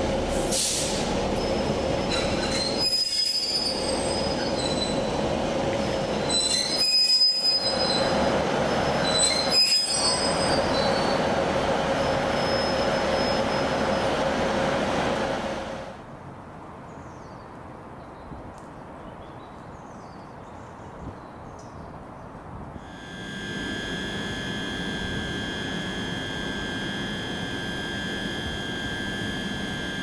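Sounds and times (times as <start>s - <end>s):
train running on rails: 0.0s - 16.0s, 22.8s - 30.0s
high-pitched wheel squeal: 1.4s - 5.2s, 5.9s - 14.2s, 22.8s - 30.0s.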